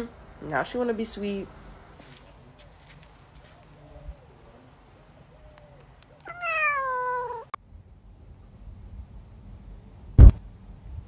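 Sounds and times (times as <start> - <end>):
cat meowing: 6.2 - 7.6
loud sharp thump: 10.2 - 10.4.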